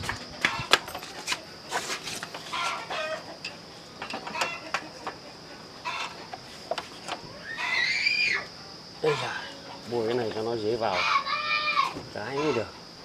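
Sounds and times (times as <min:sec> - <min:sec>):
chickens clucking: 0:00.0 - 0:07.9, 0:12.2 - 0:12.9.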